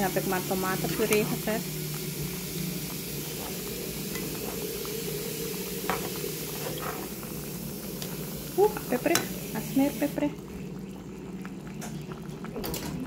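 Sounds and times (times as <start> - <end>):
food sizzling in oil: 0.0 - 10.4.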